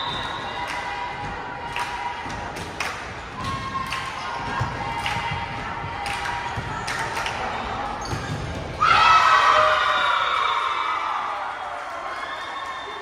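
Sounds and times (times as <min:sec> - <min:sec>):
basketball bouncing on gym floor: 0:03.3 - 0:07.1, 0:08.0 - 0:08.8
crowd cheering and yelling: 0:08.8 - 0:13.0.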